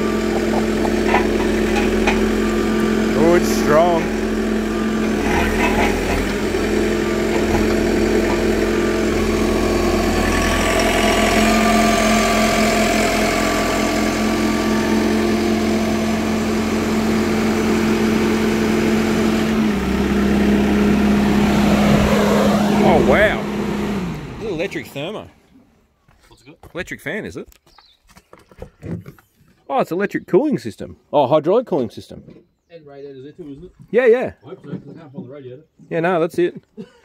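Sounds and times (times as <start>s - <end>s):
diesel engine idling: 0.0s - 25.3s.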